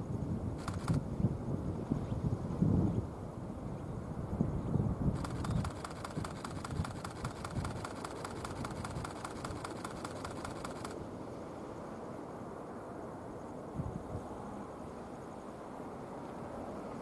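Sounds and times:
distant jet rumble: 0.4s - 1.1s, 5.1s - 11.0s
regular ticking: 5.2s - 11.0s.

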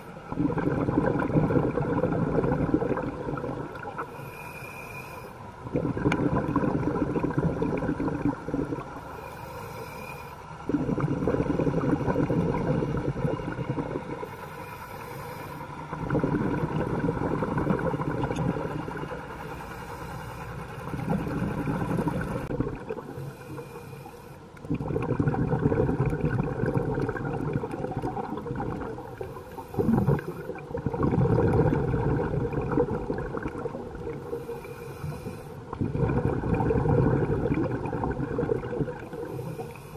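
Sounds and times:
regulator inhale hiss: 4.0s - 5.5s, 9.0s - 10.6s, 14.2s - 15.8s, 19.2s - 20.9s, 23.1s - 24.5s, 29.1s - 30.6s, 34.2s - 35.7s, 39.0s - 39.9s
loud exhaust bubbling: 15.9s - 18.8s, 24.7s - 34.3s, 35.7s - 39.1s.

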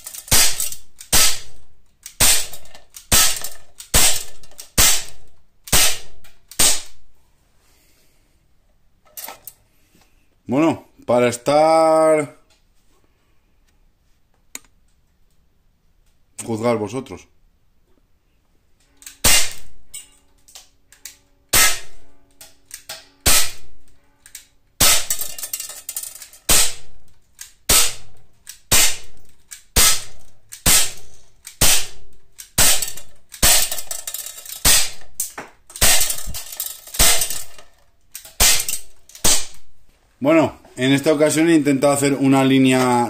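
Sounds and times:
air pistol pops: 0.2s - 7.0s, 19.1s - 19.7s, 21.6s - 21.9s, 22.7s - 23.7s, 26.5s - 33.8s, 38.2s - 39.7s.

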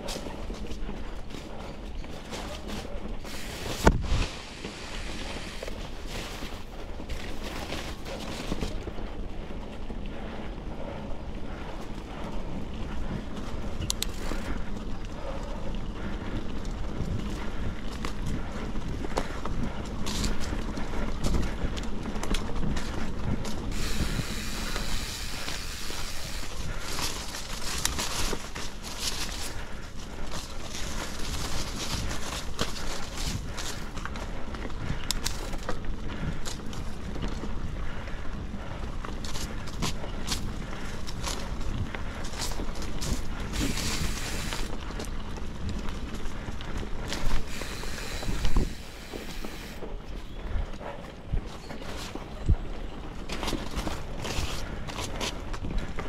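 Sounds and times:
wind rumble on microphone: 0.0s - 56.0s
tyres hissing on dirt: 3.2s - 5.8s, 23.7s - 28.3s, 43.5s - 44.8s, 47.2s - 49.8s
brushing vegetation: 23.7s - 29.6s.

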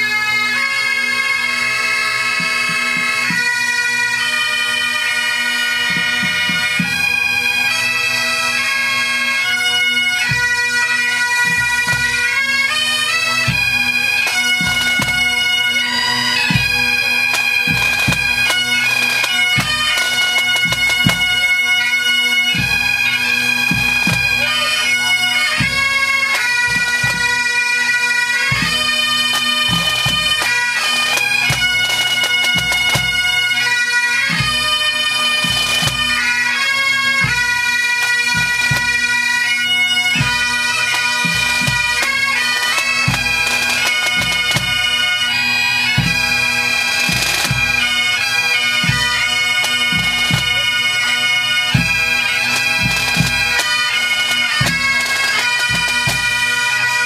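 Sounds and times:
bagpipes melody with drone: 0.0s - 57.0s
snare and bass drums: 17.3s - 21.4s.

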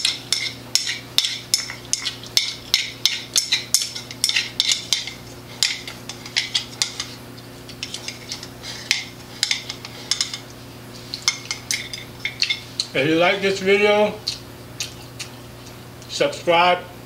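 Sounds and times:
chopsticks clinking on ceramic bowl: 0.0s - 10.5s, 11.1s - 12.9s.

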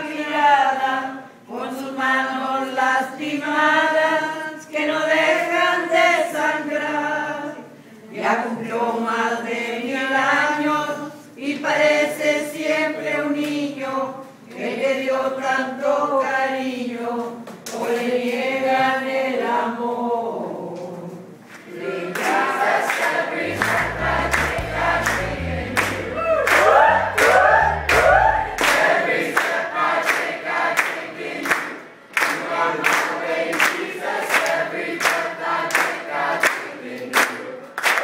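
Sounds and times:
people singing together: 0.0s - 38.0s
hand-clapping to the beat: 22.1s - 38.0s.

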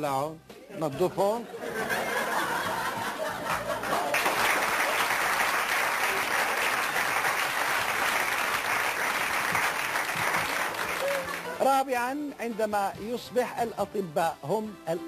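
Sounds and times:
audience applauding: 3.0s - 11.7s.

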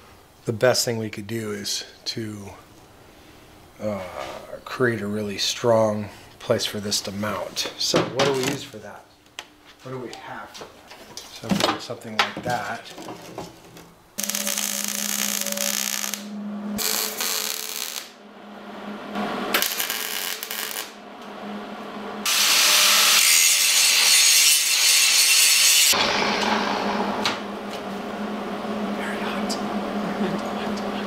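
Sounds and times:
steady hum: 13.8s - 22.3s, 25.9s - 31.0s
angle grinder grinding steel: 14.2s - 18.2s, 22.3s - 27.1s
welder crackling: 14.2s - 18.2s, 19.5s - 21.0s.

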